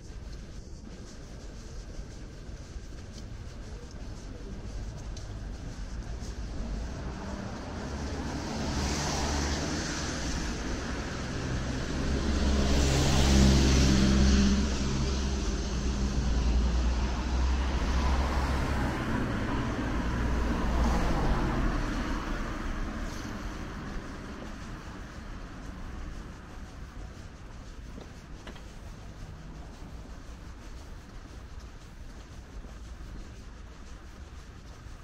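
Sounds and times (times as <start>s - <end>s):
street traffic: 0.0s - 35.0s
vehicle passing close: 4.8s - 31.9s.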